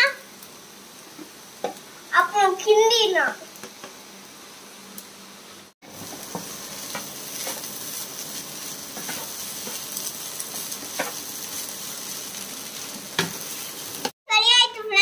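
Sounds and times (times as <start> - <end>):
rice sizzling in a pan: 0.0 - 14.2
spatula scraping and knocking pan: 5.9 - 12.0, 13.1 - 14.1.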